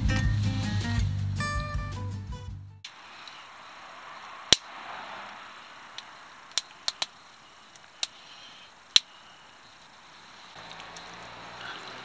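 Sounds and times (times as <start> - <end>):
faint hiss: 2.8 - 12.0.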